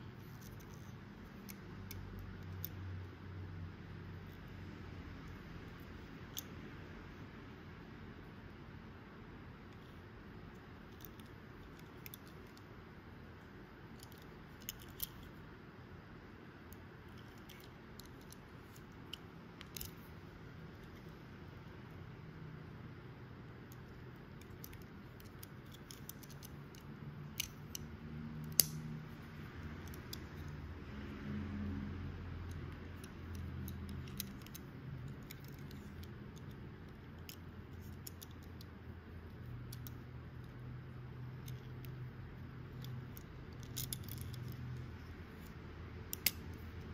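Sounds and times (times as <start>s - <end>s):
low steady hiss: 0.0s - 46.9s
low steady hum: 0.0s - 46.9s
fingers clicking on toy car: 24.4s - 28.9s, 32.5s - 38.7s, 42.7s - 45.5s, 46.1s - 46.6s.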